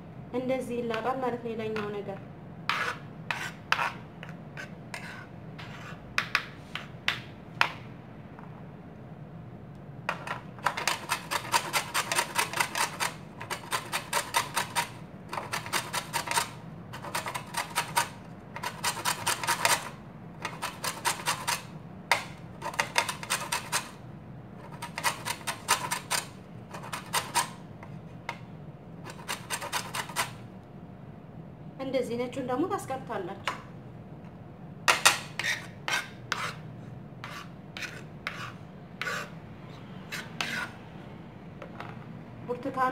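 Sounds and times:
lemon peel grated on grater: 0:10.6 - 0:21.7, 0:22.6 - 0:24.0, 0:24.6 - 0:27.6, 0:29.1 - 0:30.4.

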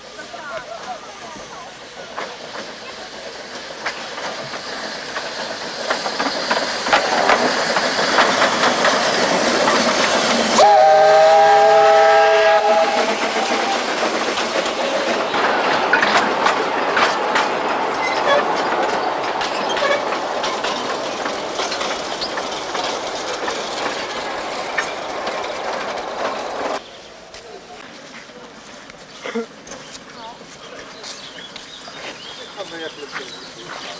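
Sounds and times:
steam locomotive running: 0:00.0 - 0:33.9
train wheels clicking over rail joints: 0:00.2 - 0:33.9
steam whistle blowing: 0:10.6 - 0:13.8.

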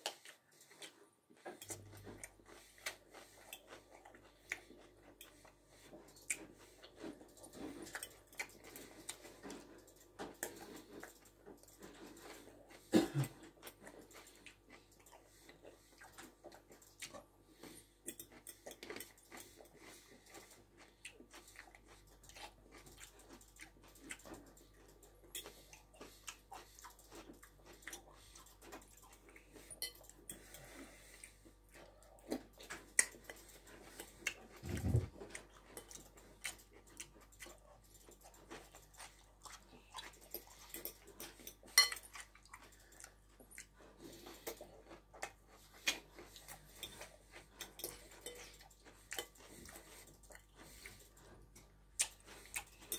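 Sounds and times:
person chewing: 0:00.0 - 0:52.9
fork tapping bowl: 0:41.8 - 0:42.0.

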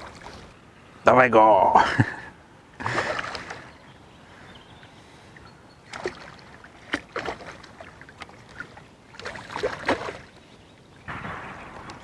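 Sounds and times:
fish thrashing in water: 0:05.9 - 0:10.4.

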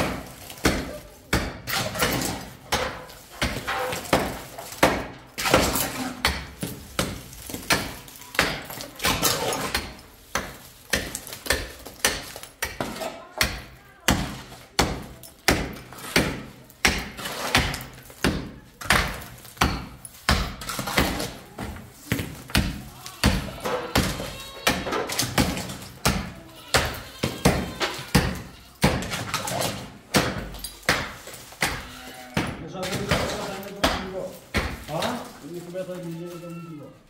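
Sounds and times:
hammer striking plastered wall: 0:00.0 - 0:35.2.

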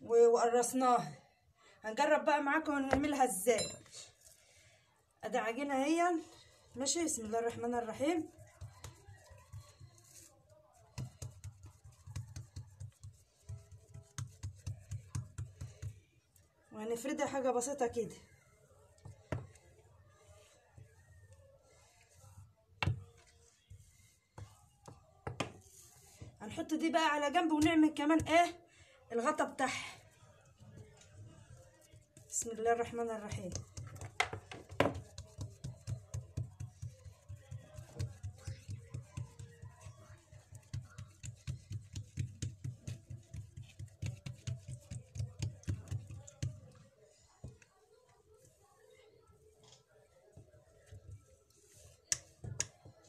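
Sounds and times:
rolling pin rolling dough: 0:07.0 - 0:16.2, 0:17.9 - 0:28.4, 0:30.2 - 0:49.5, 0:50.1 - 0:53.0
rolling pin thumping on dough: 0:22.8 - 0:23.0, 0:25.2 - 0:25.6, 0:33.3 - 0:46.6.

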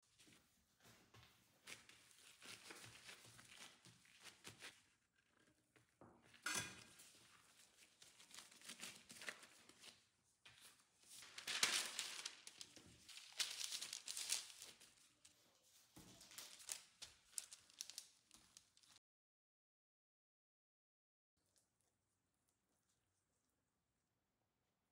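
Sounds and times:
baking paper rustling and crinkling: 0:01.6 - 0:05.7, 0:06.3 - 0:19.0.

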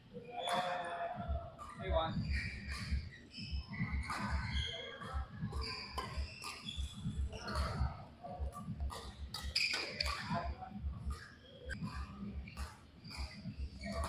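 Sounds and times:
shoe squeaks on court: 0:00.2 - 0:01.0, 0:01.6 - 0:14.0
racket striking shuttlecock: 0:08.5 - 0:10.4.

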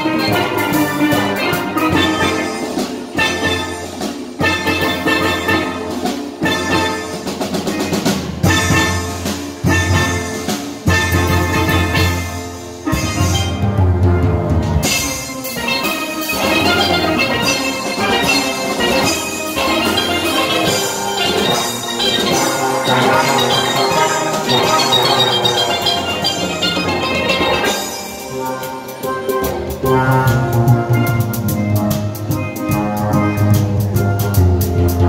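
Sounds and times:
drums: 0:00.0 - 0:35.0
steel pans ringing: 0:14.8 - 0:29.7.

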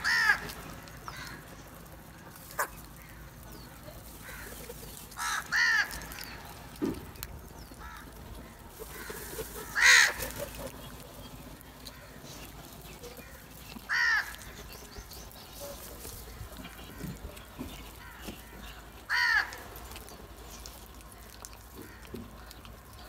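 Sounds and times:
crows cawing: 0:00.0 - 0:03.3, 0:04.2 - 0:06.6, 0:07.7 - 0:11.0, 0:13.2 - 0:14.7, 0:18.0 - 0:19.8, 0:21.7 - 0:22.6.

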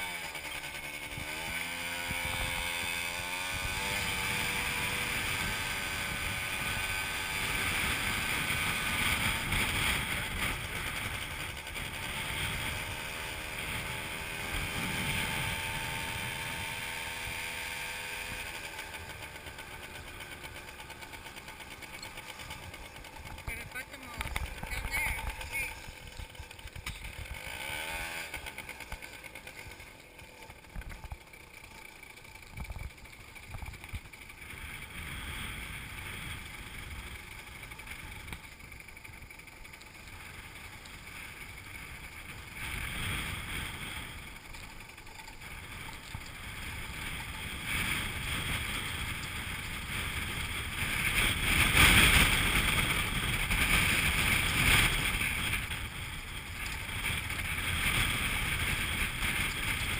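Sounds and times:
motorbike engine running: 0:00.0 - 0:59.9
wind noise on microphone: 0:01.1 - 0:18.6, 0:45.5 - 0:59.9.

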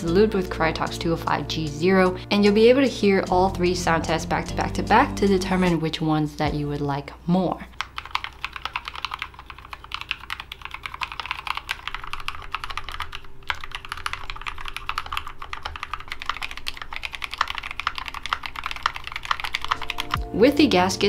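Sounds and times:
keyboard typing clacks: 0:07.8 - 0:20.4.

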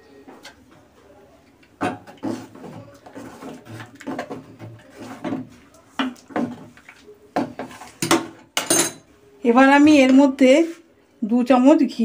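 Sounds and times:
metal ladle scraping pot: 0:02.0 - 0:05.5.

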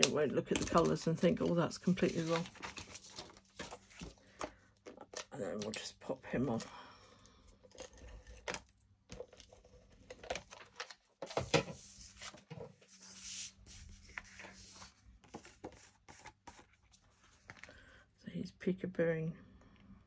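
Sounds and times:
card stock rustling: 0:00.0 - 0:05.9, 0:07.8 - 0:17.7.

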